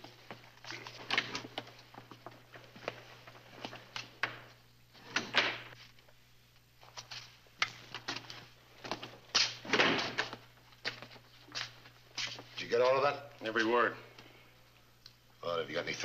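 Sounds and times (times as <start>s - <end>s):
door opening and shutting: 4.2s - 5.8s, 9.4s - 10.4s.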